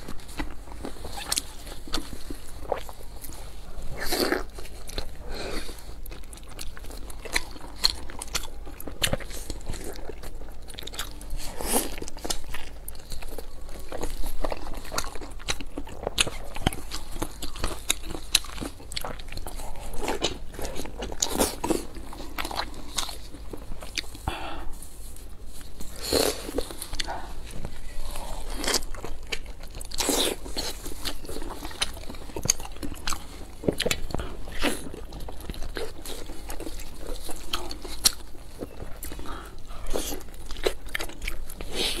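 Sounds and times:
chewing dumpling with wet clicks: 0:04.0 - 0:24.2, 0:26.2 - 0:42.0.

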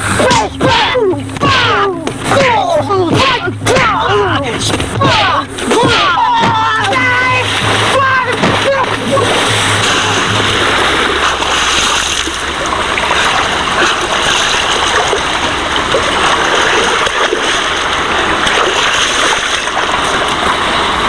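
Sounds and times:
water splashing and sloshing: 0:00.0 - 0:21.0.

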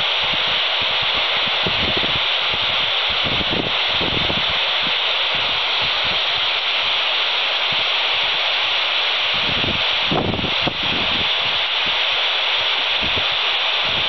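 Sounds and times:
wind gusts on microphone: 0:00.0 - 0:07.0, 0:07.6 - 0:14.0
radio static hiss: 0:00.0 - 0:14.0.

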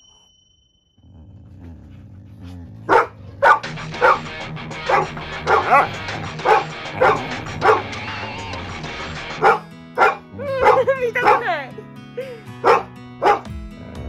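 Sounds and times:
dog barking and yipping: 0:02.9 - 0:08.6, 0:09.2 - 0:11.8, 0:12.6 - 0:13.5
background music: 0:02.9 - 0:14.0.

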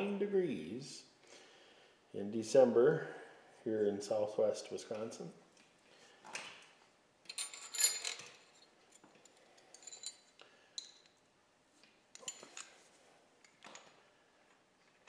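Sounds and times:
wrench clinking on metal: 0:07.2 - 0:11.2, 0:12.2 - 0:12.8.

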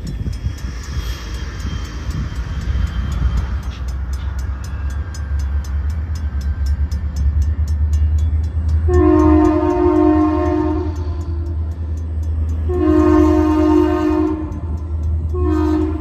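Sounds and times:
crossing bells ringing: 0:00.0 - 0:16.0
diesel locomotive rumble: 0:00.0 - 0:16.0
locomotive multi-chime horn: 0:07.8 - 0:11.6, 0:12.4 - 0:16.0.

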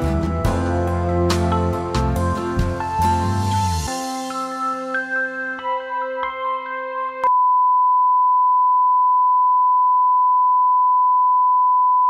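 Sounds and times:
music: 0:00.0 - 0:07.3.

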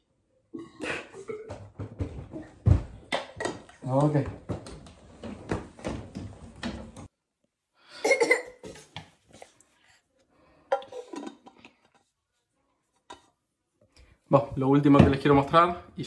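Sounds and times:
cough-like vocal sounds: 0:00.6 - 0:01.6, 0:08.0 - 0:08.6.

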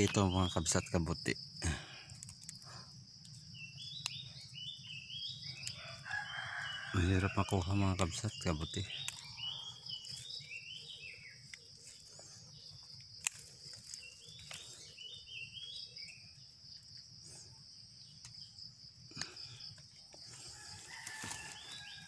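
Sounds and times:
insects droning: 0:00.0 - 0:22.0
twigs snapping and leaves rustling: 0:01.6 - 0:16.2, 0:19.1 - 0:22.0.

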